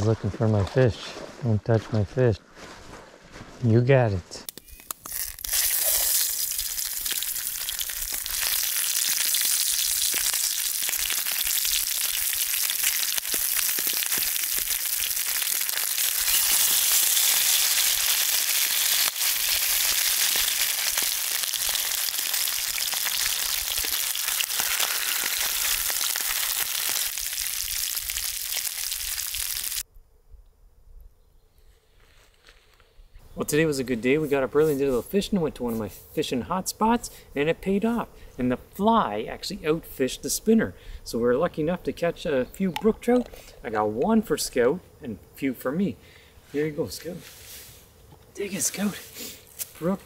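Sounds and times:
fish sizzling in a pan: 5.0s - 29.8s.

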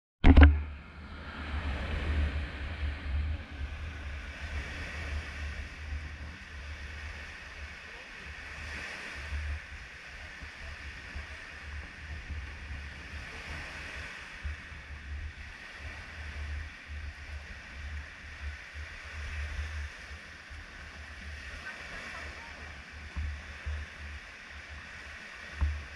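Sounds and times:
wind buffeting microphone: 0.2s - 25.9s
small waves breaking on shore: 0.3s - 25.9s.

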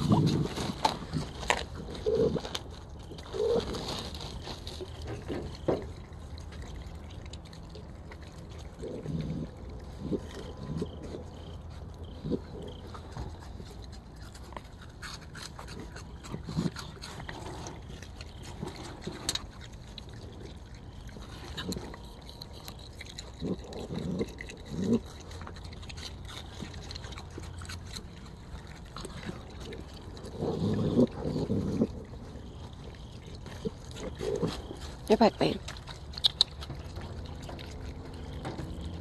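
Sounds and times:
animal splashing and slurping water: 0.0s - 39.0s.

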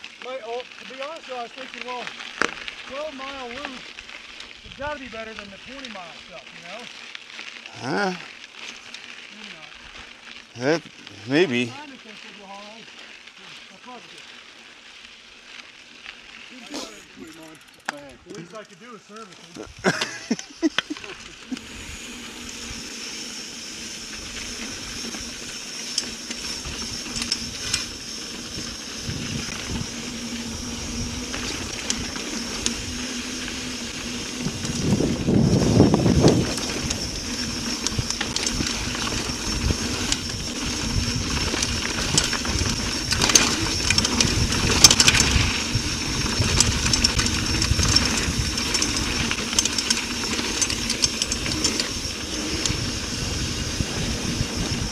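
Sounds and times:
bike clicks and rattles: 0.0s - 54.9s
bike tyre noise on dirt: 0.0s - 54.9s
wind rumble: 26.2s - 54.9s.

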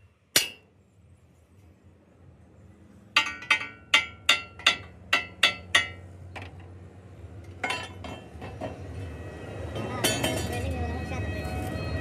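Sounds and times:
hammer striking steel: 0.3s - 0.7s, 3.2s - 6.1s.

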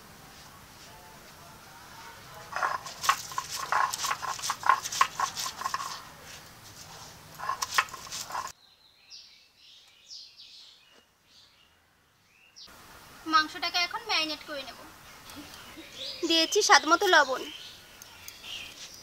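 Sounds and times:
birds chirping: 2.1s - 12.8s, 13.5s - 19.0s
stone grinder crushing chillies: 2.5s - 6.0s, 7.4s - 8.5s.

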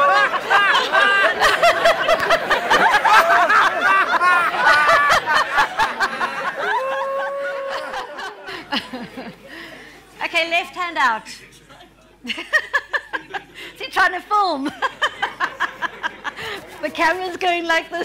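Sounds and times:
crowd laughing: 0.0s - 10.2s, 12.2s - 18.0s.

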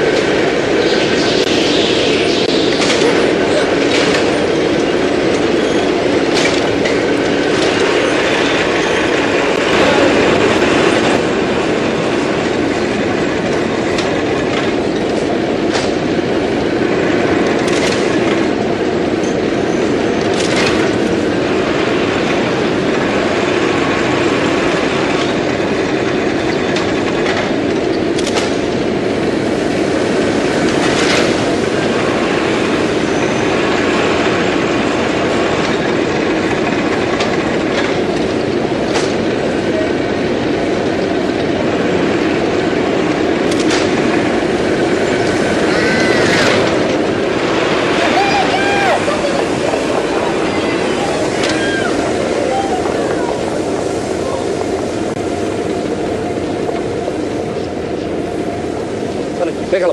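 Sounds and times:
sharp machine clack: 0.0s - 11.2s
spinning machines clattering: 0.0s - 58.2s.

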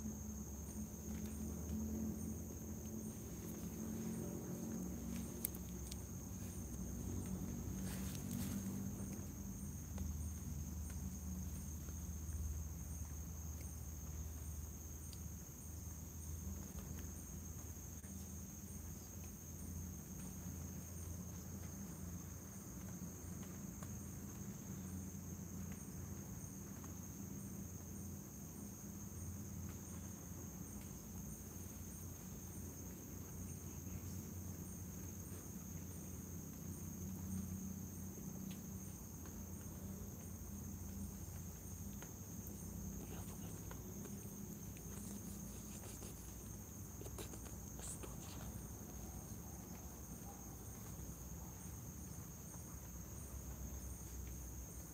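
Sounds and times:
crickets trilling: 0.0s - 54.9s
faint rustles: 0.7s - 11.0s, 40.8s - 50.2s.

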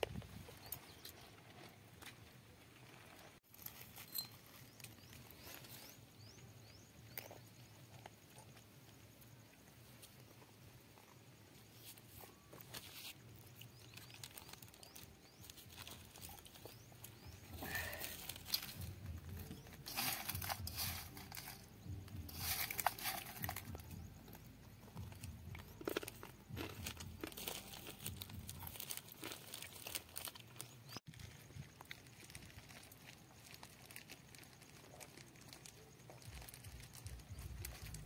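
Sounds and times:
snack mix rustling on steel plate: 15.9s - 24.0s.

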